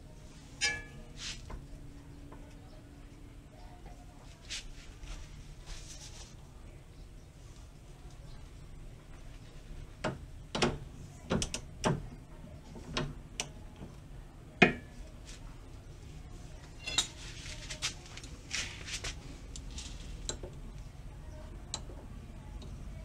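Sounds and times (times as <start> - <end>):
hand tools clinking on metal: 0.6 - 1.0, 16.8 - 17.2.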